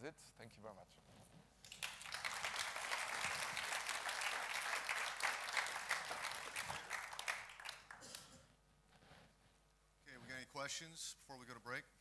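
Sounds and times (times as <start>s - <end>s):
audience applauding: 1.7s - 8.2s.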